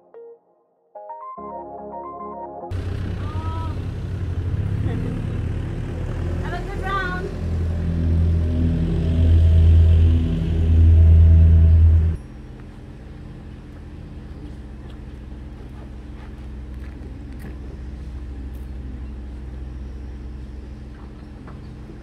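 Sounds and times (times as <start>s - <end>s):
bass-heavy background music: 5.9s - 12.2s
low mechanical hum: 6.5s - 22.0s.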